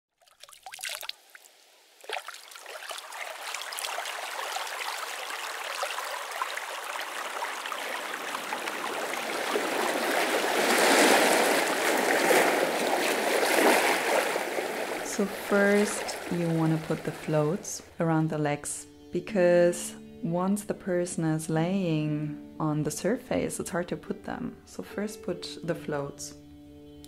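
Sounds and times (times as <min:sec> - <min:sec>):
trickling bubbling water: 0:00.1 - 0:17.7.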